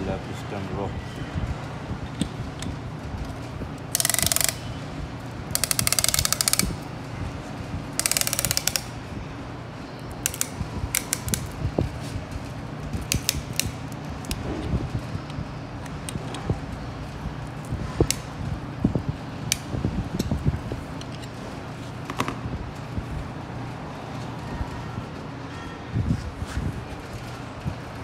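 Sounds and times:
ratchet clicking: 3.8 - 4.7, 5.5 - 6.8, 8.0 - 8.9, 10.1 - 11.6, 13.0 - 14.4.

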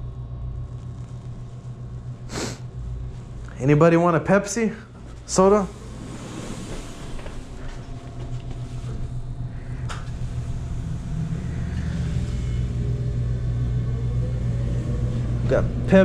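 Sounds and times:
vending machine humming: 0.0 - 16.0.

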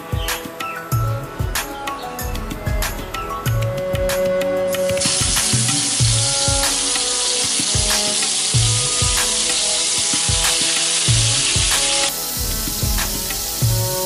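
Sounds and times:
food sizzling in hot oil: 4.8 - 14.0.

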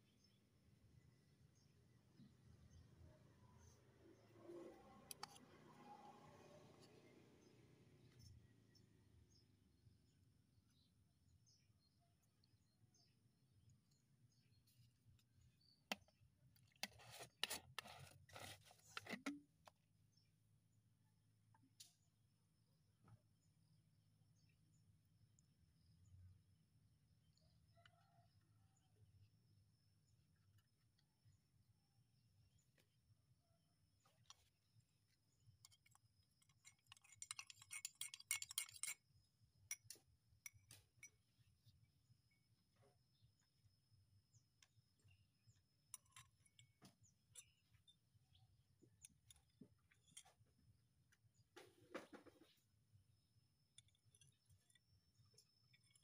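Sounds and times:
metal spoon clinking against glass: 35.7 - 39.1.

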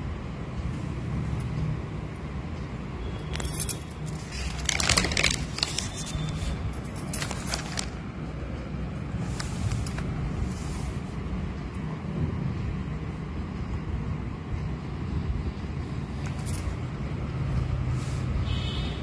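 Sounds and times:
paper pages rustling: 4.1 - 8.0.

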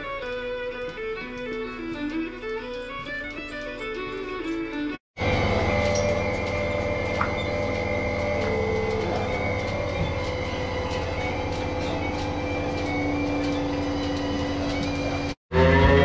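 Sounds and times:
vacuum pump drone: 5.2 - 16.0.

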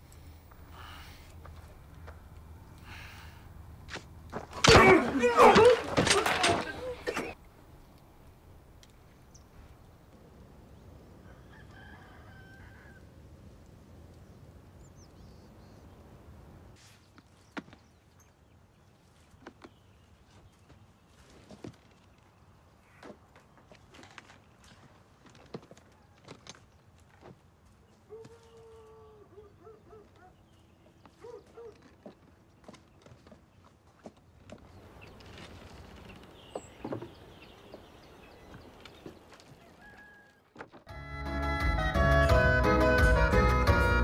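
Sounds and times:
faint rooster crowing: 11.2 - 13.2, 28.1 - 30.3, 39.4 - 40.6.

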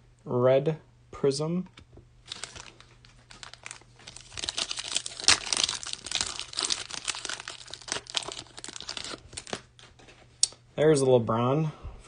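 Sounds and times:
foil wrapper crinkling: 2.2 - 10.0.

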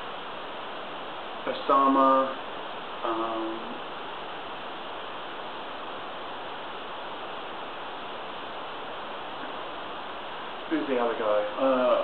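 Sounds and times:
recording hiss: 0.0 - 12.0.

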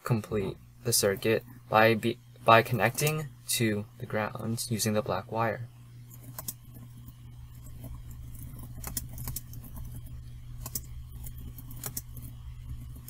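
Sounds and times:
low hum: 0.0 - 13.0
keyboard typing: 6.0 - 13.0.

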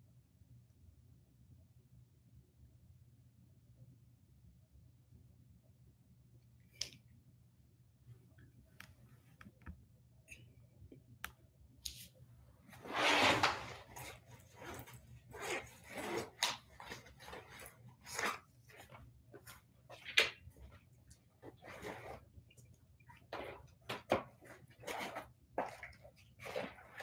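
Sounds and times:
notebook set on table: 11.9 - 27.0
backpack rustling: 12.7 - 20.3, 21.4 - 22.2, 23.3 - 27.0.

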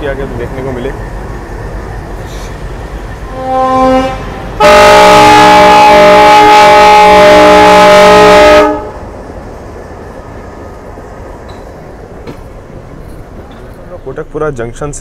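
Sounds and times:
train running noise: 0.0 - 15.0
locomotive air horn blast: 3.3 - 8.9.

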